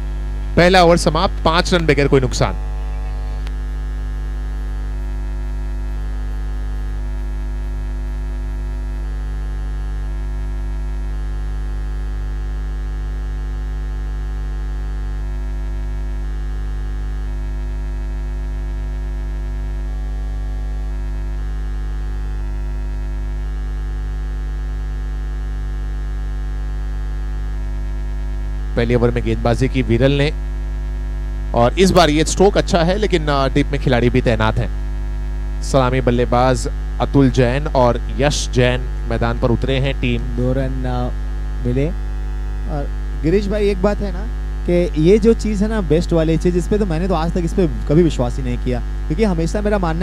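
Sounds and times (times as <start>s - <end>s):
electrical mains hum: 0.0s - 50.0s.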